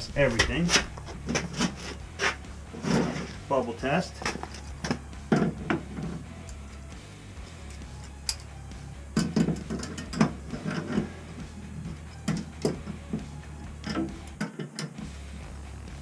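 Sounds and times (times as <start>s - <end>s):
metallic clicks and knocks of tools: 6.4s - 6.6s, 7.6s - 8.5s, 9.2s - 10.8s, 12.0s - 12.8s, 13.8s - 15.0s.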